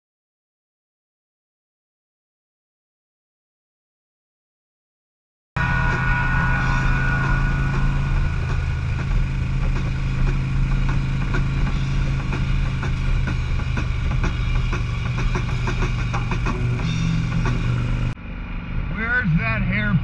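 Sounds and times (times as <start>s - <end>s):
motorcycle engine rumbling: 5.6s - 20.0s.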